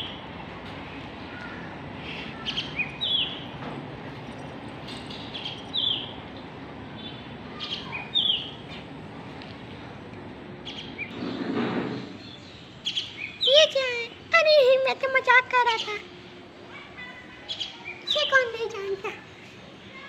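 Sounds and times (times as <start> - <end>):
bird chirping: 2.4 - 3.6, 5.1 - 8.8.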